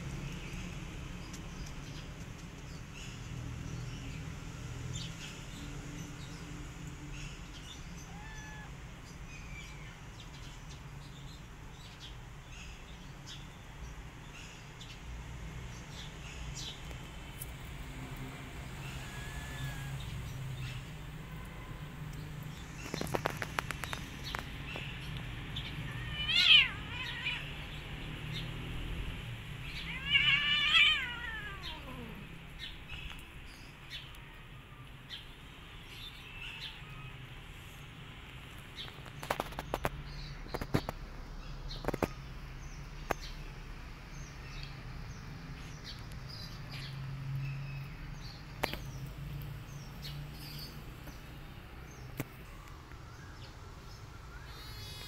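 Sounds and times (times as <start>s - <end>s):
faint clicks: 1.2s - 2.7s
cat meowing: 8.0s - 8.8s, 18.8s - 20.1s, 25.8s - 27.8s, 29.6s - 32.4s.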